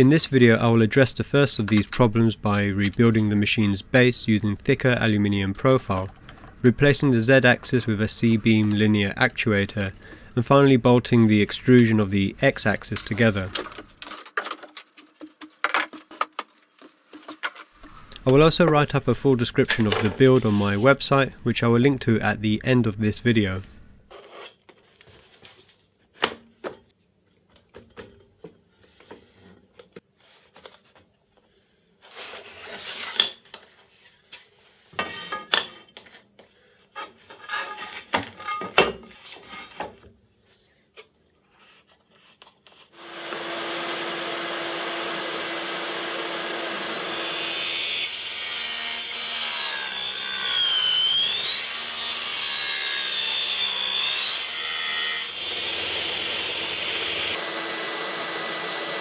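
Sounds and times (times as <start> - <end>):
table saw running: 43.0 - 54.6, 55.2 - 59.0.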